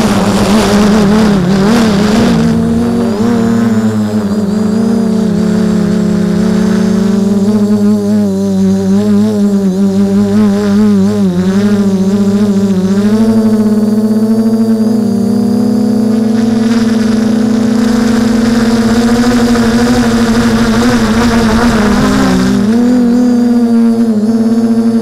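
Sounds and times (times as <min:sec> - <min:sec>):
rush of air noise: 0:00.0 - 0:06.8
drone motors whining: 0:00.0 - 0:25.0.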